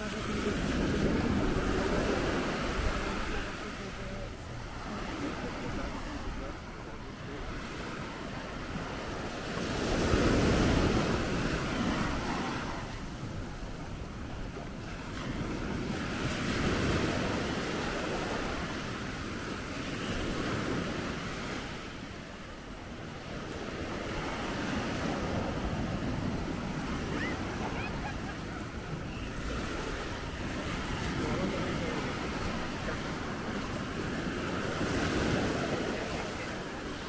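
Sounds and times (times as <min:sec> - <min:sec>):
wind buffeting microphone: 0:00.0 - 0:03.5
surf washing onto beach: 0:00.0 - 0:37.0.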